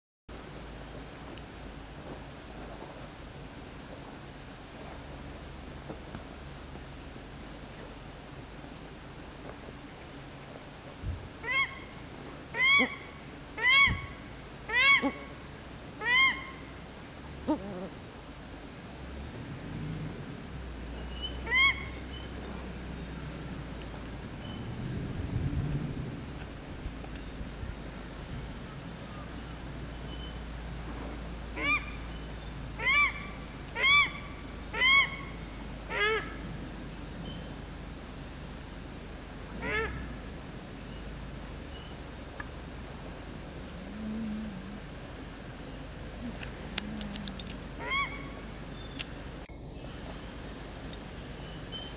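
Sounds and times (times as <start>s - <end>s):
shrill duck calls: 14.7s - 15.3s.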